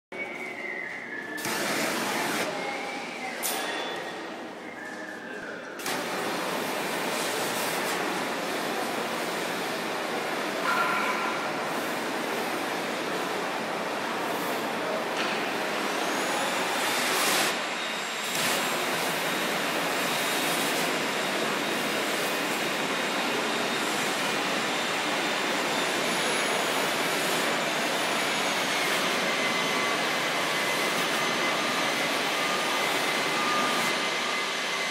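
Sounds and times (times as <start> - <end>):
gas heat gun flame hissing: 1.4 - 2.5.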